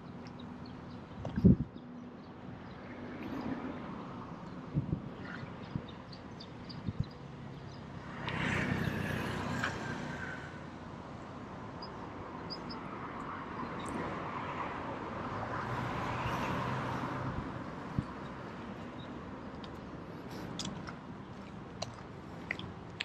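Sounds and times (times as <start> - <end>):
motor vehicle passing: 8.0 - 10.6, 14.3 - 22.6.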